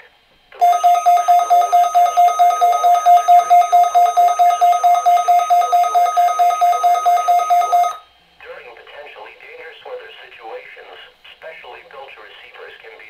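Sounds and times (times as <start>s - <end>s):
fast-pulsing electronic alarm beep: 0.6s - 8.0s
steady high tone: 0.6s - 8.0s.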